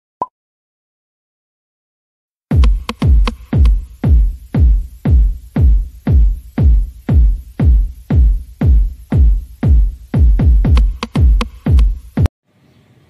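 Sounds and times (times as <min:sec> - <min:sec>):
deep kick drum: 0:02.5 - 0:12.3
electronic music: 0:02.5 - 0:12.3
light percussion: 0:02.5 - 0:12.3.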